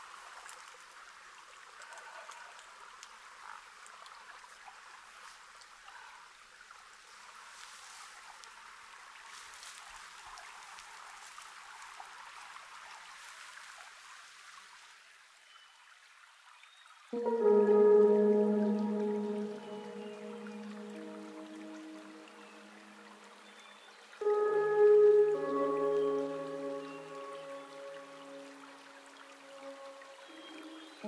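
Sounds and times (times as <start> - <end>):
small ticks and crackles: 0.0 - 5.9, 6.6 - 14.3.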